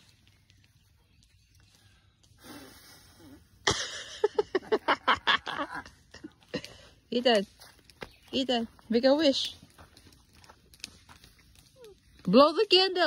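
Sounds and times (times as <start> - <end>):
blowing out candles: 2.4 - 3.6.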